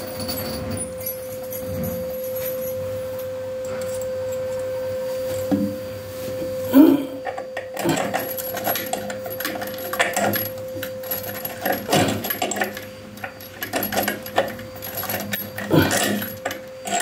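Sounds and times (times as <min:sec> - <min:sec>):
steady hum: 0:00.0 - 0:17.0
metal tool clinking on fittings: 0:07.2 - 0:17.0.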